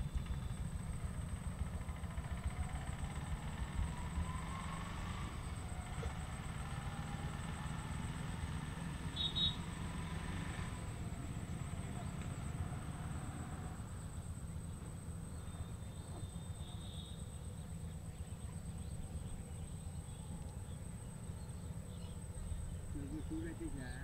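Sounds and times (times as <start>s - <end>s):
high-pitched insect whine: 0.0s - 24.0s
faint chirps: 11.4s - 24.0s.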